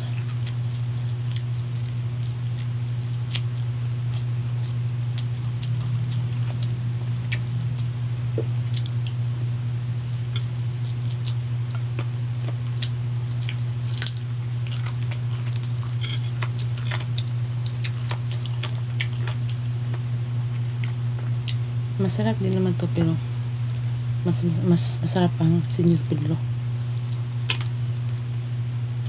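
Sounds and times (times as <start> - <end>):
person chewing food: 0.0 - 21.8, 22.4 - 24.0, 26.6 - 28.2
steady low hum: 0.0 - 29.0.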